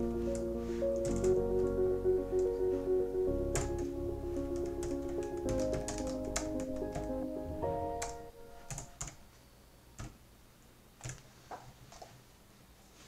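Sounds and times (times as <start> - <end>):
background music: 0.0 - 9.2.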